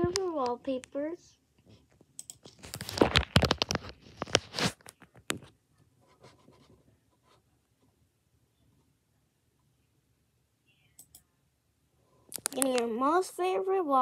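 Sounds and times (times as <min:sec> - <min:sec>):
scratchy rustling: 0:02.5 - 0:04.9.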